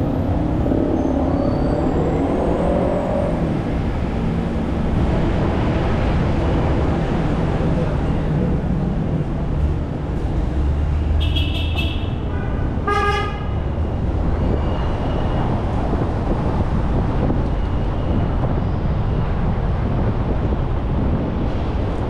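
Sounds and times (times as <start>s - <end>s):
car road and engine rumble: 0.0s - 22.0s
vehicle horn toot: 11.2s - 13.6s.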